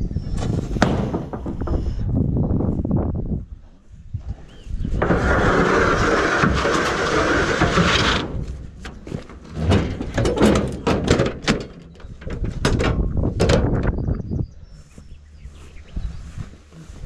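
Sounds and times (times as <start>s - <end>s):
metal tailgate knocks and clanks: 6.6s - 13.9s.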